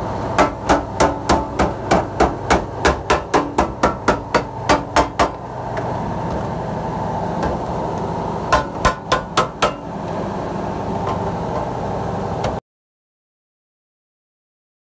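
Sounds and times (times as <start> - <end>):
machine hum: 0.0 - 12.6
hammer blows on sheet metal: 8.5 - 9.9.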